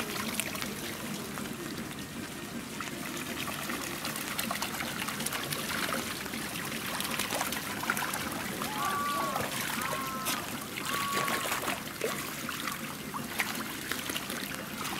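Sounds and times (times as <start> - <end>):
pool water splashing and trickling: 0.0 - 14.9.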